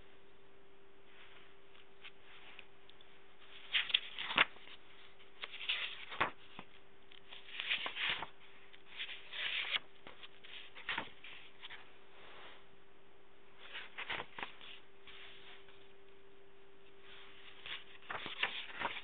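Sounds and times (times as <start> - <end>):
faint steady hum: 0.0 - 19.0
paper pages rustling: 1.1 - 12.6, 13.6 - 15.9, 17.0 - 19.0.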